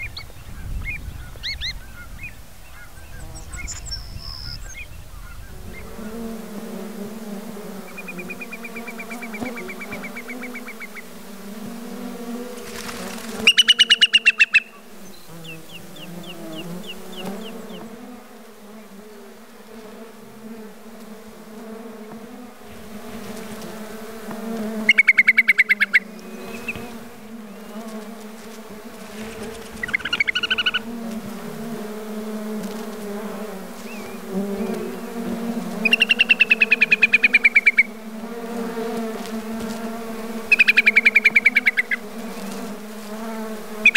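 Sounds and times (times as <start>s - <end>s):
insects buzzing: 0.0s - 43.9s
bird trilled whistle: 13.4s - 14.7s, 35.9s - 36.7s.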